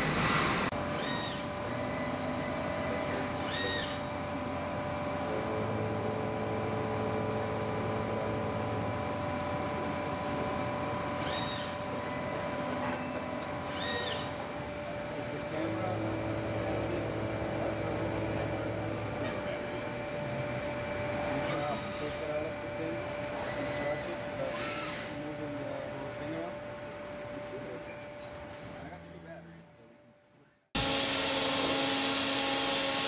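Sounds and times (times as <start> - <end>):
motor tones: 0.0 - 4.3, 10.3 - 26.6, 30.8 - 33.0
machine hum: 0.0 - 29.0.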